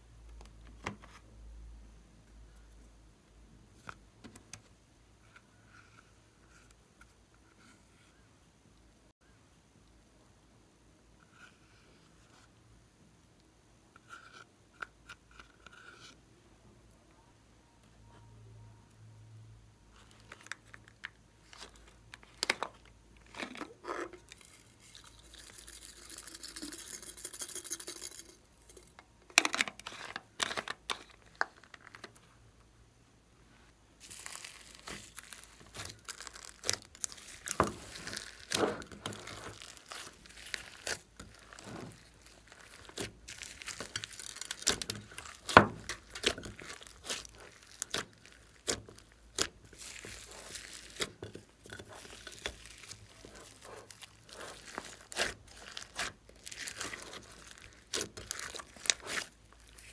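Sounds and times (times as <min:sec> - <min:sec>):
slime crackling and crinkling: 0:19.9 - 0:28.9, 0:29.5 - 0:32.3, 0:34.0 - 0:59.9.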